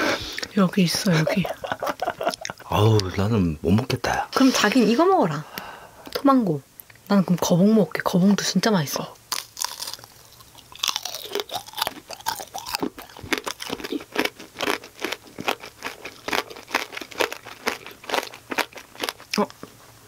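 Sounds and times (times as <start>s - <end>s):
crunching candied fruit: 9.3s - 19.8s.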